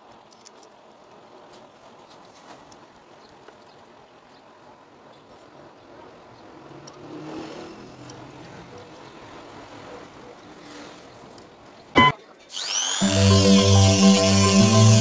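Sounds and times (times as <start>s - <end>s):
faint steady background noise: 0.0s - 13.0s
loud electronic tone: 12.0s - 12.2s, 12.9s - 15.0s
electronic background music: 13.0s - 15.0s.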